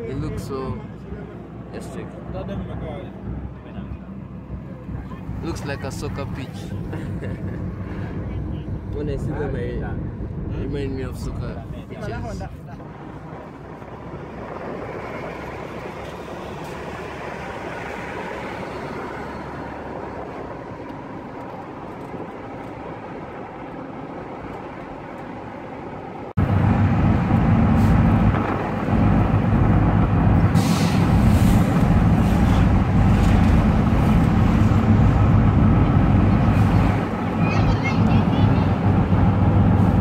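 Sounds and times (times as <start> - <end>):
moving vehicle road noise: 0.0 - 40.0
loud steady engine drone: 25.9 - 40.0.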